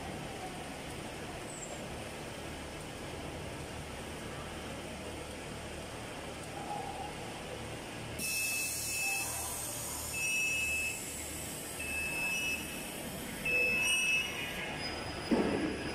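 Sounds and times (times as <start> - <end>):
factory machinery humming: 2.0 - 15.9
short high tones: 8.2 - 15.2
hiss: 8.2 - 15.9.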